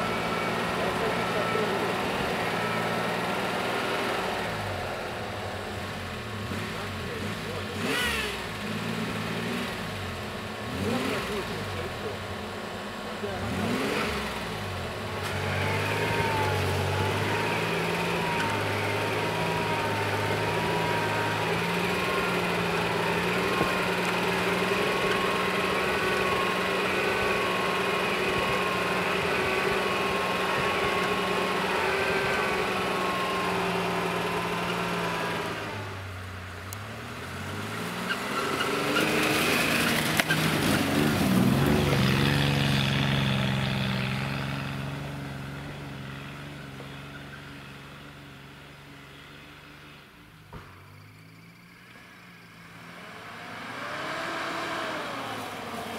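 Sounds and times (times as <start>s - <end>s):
engine revving under load: 0.0s - 48.1s, 51.9s - 55.9s
tyres spinning in snow: 14.9s - 35.8s, 37.3s - 45.5s.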